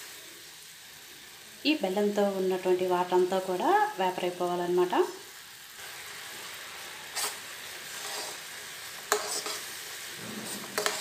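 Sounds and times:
syrup bubbling and sizzling: 0:00.0 - 0:11.0
spoon scraping and tapping pan: 0:09.0 - 0:11.0.

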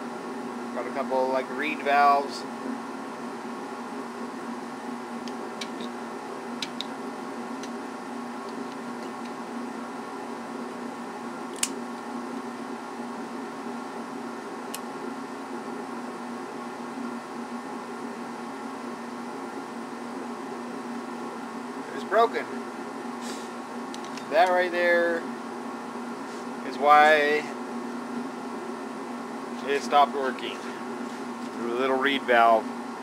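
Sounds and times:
steady machine hum: 0:00.0 - 0:33.0.

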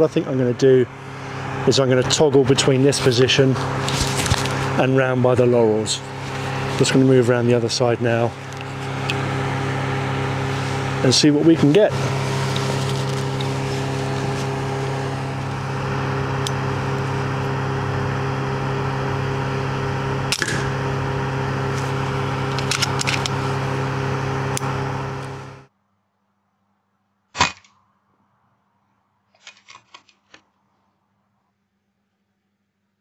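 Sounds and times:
ventilation fan hum: 0:00.0 - 0:25.7.

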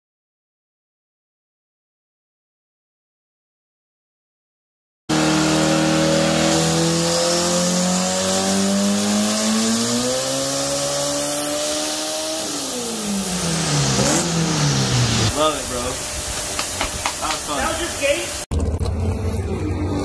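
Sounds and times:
car engine revving: 0:05.1 - 0:16.6.

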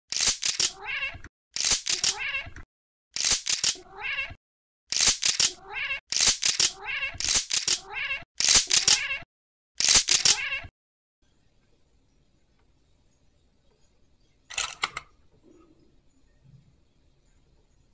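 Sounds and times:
cat meowing: 0:00.7 - 0:01.2, 0:02.1 - 0:02.6, 0:03.8 - 0:04.4, 0:05.5 - 0:06.0, 0:06.7 - 0:07.2, 0:07.8 - 0:08.2, 0:08.8 - 0:09.2, 0:10.2 - 0:10.7.

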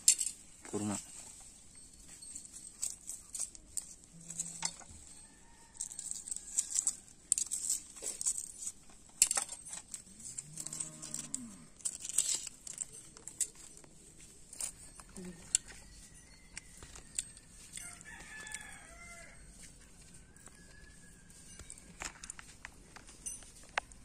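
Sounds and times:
clicks and scrapes of skewers: 0:00.0 - 0:24.0
leaf crinkling: 0:02.2 - 0:24.0
cow mooing: 0:10.3 - 0:11.7.

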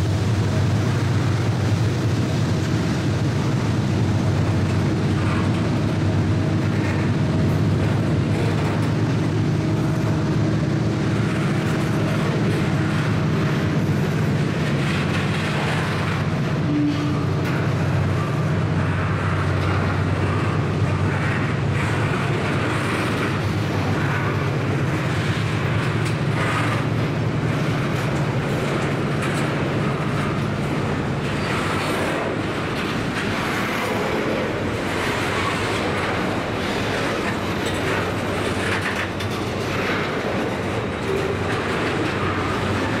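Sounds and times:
train wheels clattering on rails: 0:00.0 - 0:43.0.

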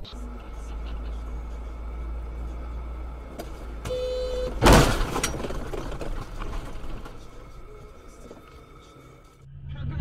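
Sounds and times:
car horn: 0:00.0 - 0:05.3
car rumble inside cabin: 0:00.0 - 0:09.4
sudden loud bang: 0:04.4 - 0:05.9.

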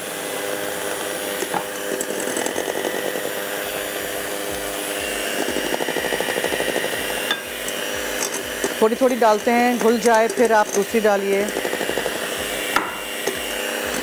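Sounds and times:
electric hand mixer whipping: 0:00.0 - 0:14.0.

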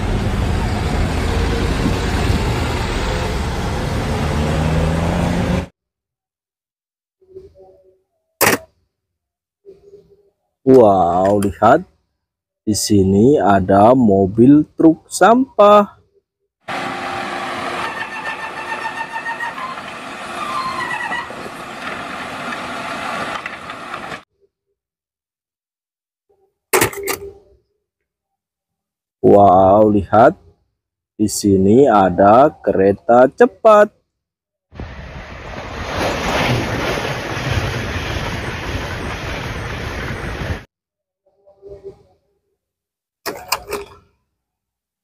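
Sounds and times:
hydraulic arm whine: 0:16.7 - 0:23.8
garbage truck running: 0:16.7 - 0:24.2
high-speed train passing: 0:16.7 - 0:24.2, 0:34.8 - 0:40.6.

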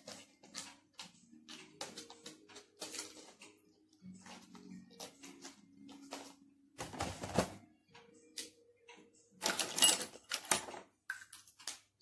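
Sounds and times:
faint background music: 0:00.0 - 0:12.0.

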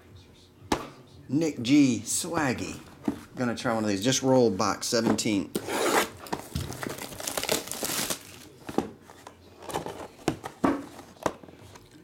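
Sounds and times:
shrink wrap crinkling and tearing: 0:06.7 - 0:08.6.

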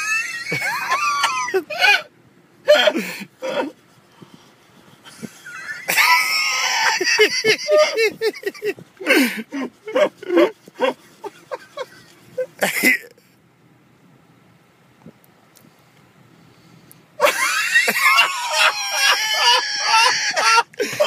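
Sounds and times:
person laughing hard: 0:00.0 - 0:02.1, 0:02.7 - 0:03.8, 0:05.1 - 0:13.1, 0:17.2 - 0:21.0.

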